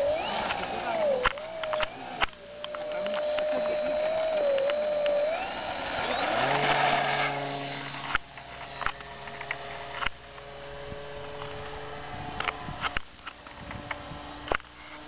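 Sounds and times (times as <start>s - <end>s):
sharp clicks: 0.0s - 5.4s, 8.0s - 10.5s
model plane motor whine: 0.0s - 15.0s.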